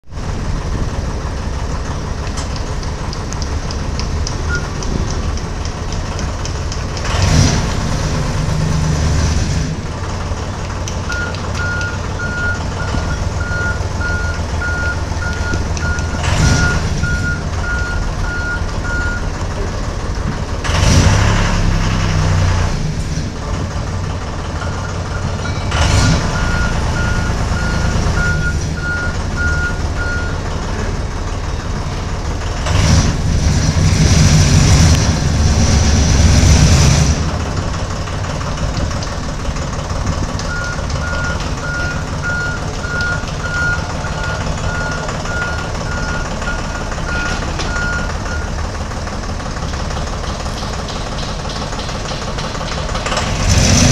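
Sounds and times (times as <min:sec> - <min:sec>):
tow tractor engine running: 0:00.0 - 0:53.9
reversing alarm beeping: 0:04.5 - 0:04.9, 0:11.1 - 0:19.3, 0:24.6 - 0:30.5, 0:40.5 - 0:48.6.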